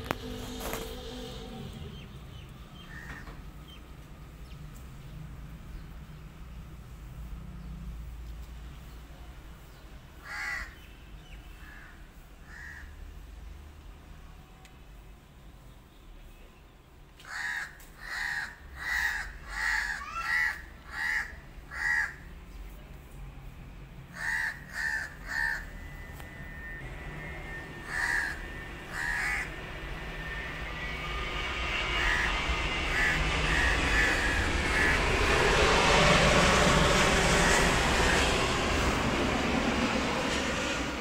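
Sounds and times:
steady rushing noise: 0.0s - 4.4s, 25.1s - 41.0s
crow cawing: 2.8s - 3.4s, 10.2s - 10.8s, 11.6s - 13.0s, 17.2s - 22.3s, 24.2s - 25.8s, 27.8s - 29.6s, 31.9s - 35.4s, 37.2s - 38.3s.

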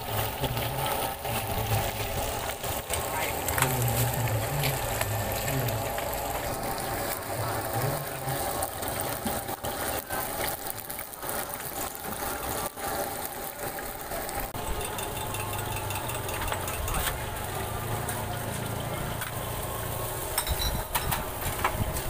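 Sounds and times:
hot oil sizzling: 0.0s - 22.0s
metal tongs clinking: 14.6s - 17.2s, 20.4s - 21.2s.

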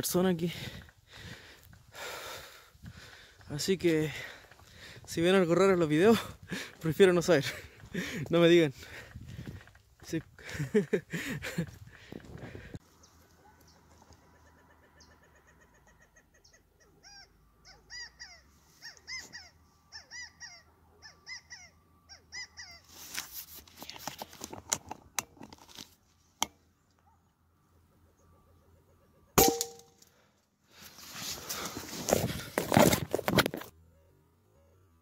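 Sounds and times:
quail calling: 14.0s - 23.0s.

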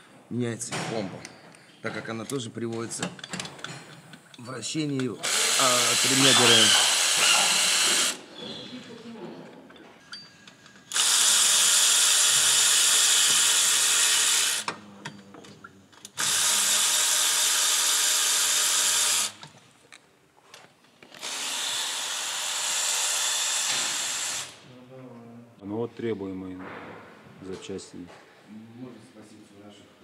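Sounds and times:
power tool running: 5.2s - 8.3s, 10.9s - 14.7s, 16.2s - 19.4s, 21.1s - 24.6s.

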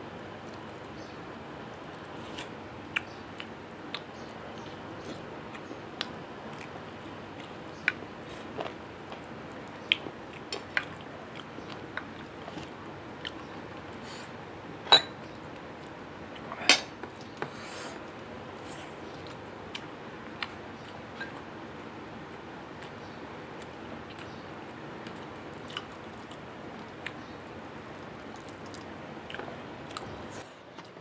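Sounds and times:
person chewing: 25.0s - 30.6s.

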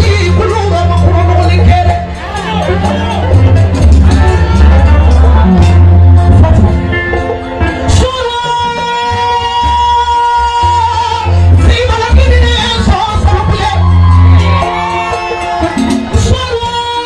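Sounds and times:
live band with pulsing bass: 0.0s - 17.0s
woman singing into microphone: 7.9s - 13.8s.

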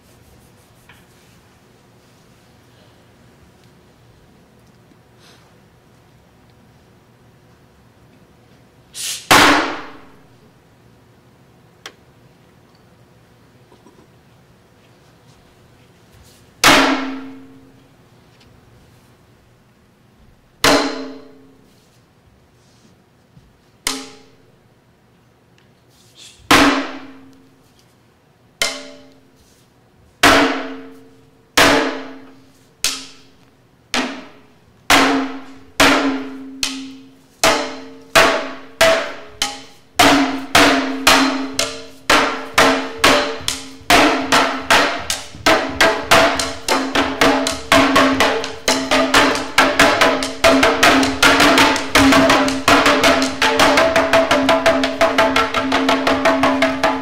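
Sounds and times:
fan drum strokes: 8.5s - 10.6s, 13.7s - 24.8s, 25.8s - 57.0s.

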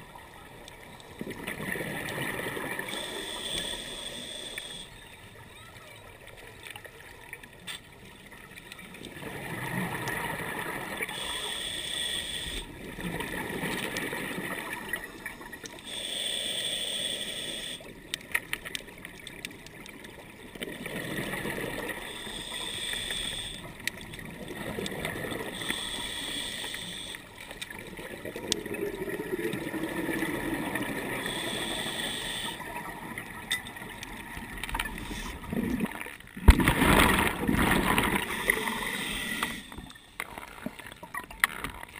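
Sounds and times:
gurgle of exhaled bubbles: 1.2s - 2.9s, 9.0s - 11.1s, 12.7s - 15.6s, 20.6s - 22.2s, 27.7s - 31.2s, 32.6s - 39.6s
hissing regulator inhale: 2.7s - 5.0s, 11.1s - 12.7s, 15.8s - 17.9s, 21.8s - 23.7s, 25.2s - 27.3s, 31.0s - 32.7s, 38.2s - 40.2s.

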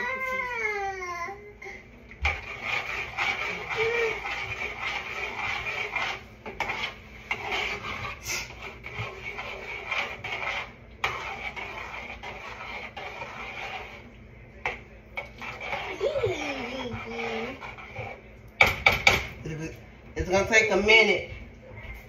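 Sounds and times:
utensil scraping inside a pot: 2.2s - 19.4s.

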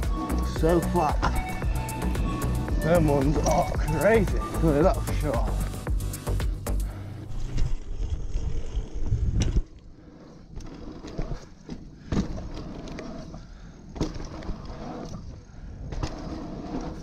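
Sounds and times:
wind buffeting microphone: 7.3s - 12.5s
tyres rolling on dirt: 7.3s - 17.0s
sharp clacks over bumps: 10.5s - 17.0s.

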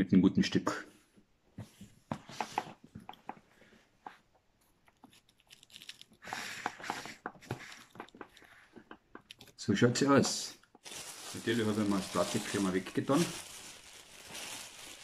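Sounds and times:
plastic wrap crinkling: 4.9s - 15.0s.

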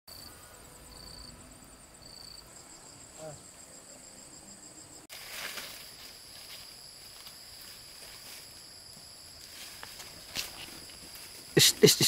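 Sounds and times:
insects trilling: 0.1s - 12.0s
pulsed insect calls: 0.1s - 12.0s
short rustle: 5.1s - 8.6s.

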